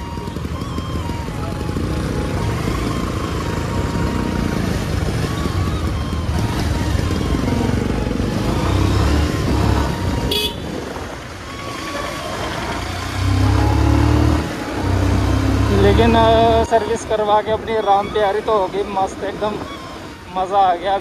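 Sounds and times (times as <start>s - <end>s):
motorcycle engine running: 0.0s - 16.6s
wind and road noise: 0.0s - 21.0s
high-pitched vehicle horn toot: 10.3s - 10.8s.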